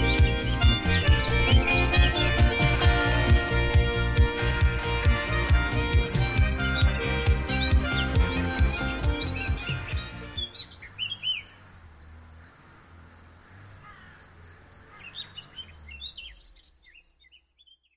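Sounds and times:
music with a steady beat: 0.0 - 10.4
birds chirping: 0.0 - 17.9.

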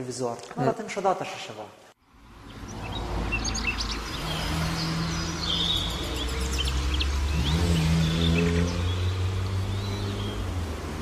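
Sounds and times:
small birds chirping: 2.2 - 11.0.

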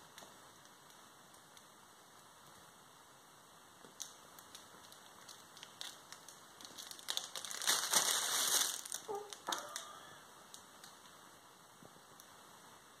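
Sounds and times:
fabric tunnel rustling: 4.7 - 9.8.

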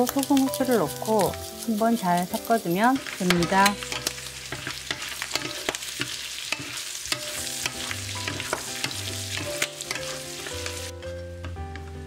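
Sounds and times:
food sizzling in frying pan: 0.0 - 12.0
wooden spatula scraping pan: 1.0 - 11.2.

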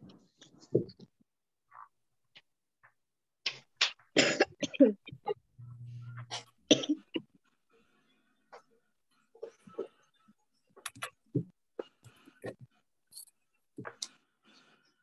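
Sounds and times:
person coughing: 4.2 - 5.0.

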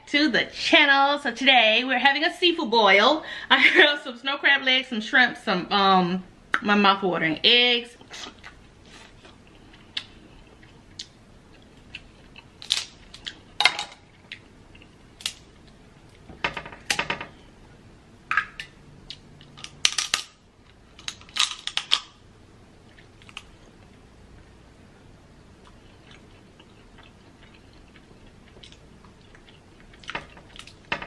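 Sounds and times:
crab shells cracking: 12.0 - 13.4, 19.1 - 22.2.

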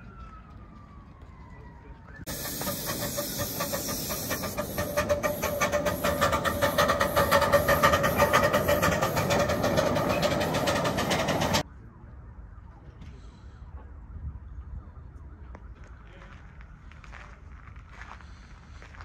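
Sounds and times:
steam hissing: 2.3 - 11.6
steam locomotive chuffing: 2.3 - 11.6.

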